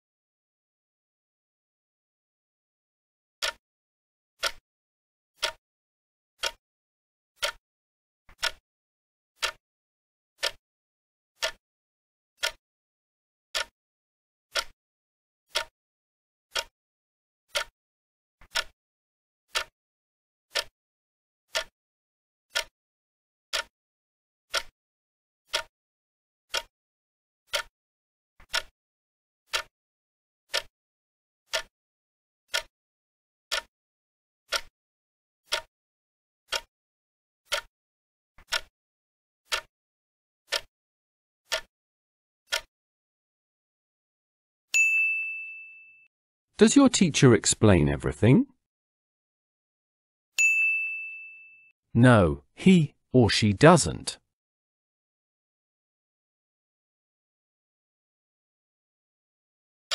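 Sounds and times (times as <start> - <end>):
ringing clock ticks: 5.4 - 5.6, 6.4 - 6.6, 7.4 - 7.6, 8.4 - 8.6, 9.4 - 9.6, 11.4 - 11.6, 12.4 - 12.6, 15.5 - 15.7, 16.5 - 16.7, 17.5 - 17.7, 18.5 - 18.7, 19.5 - 19.7, 20.5 - 20.7, 21.5 - 21.7, 22.5 - 22.7, 23.5 - 23.7, 24.5 - 24.7, 25.5 - 25.7, 26.5 - 26.7, 27.5 - 27.7, 29.5 - 29.7, 30.5 - 30.7, 31.5 - 31.7, 32.5 - 32.7, 33.5 - 33.7, 44.8 - 46.1, 50.4 - 51.6.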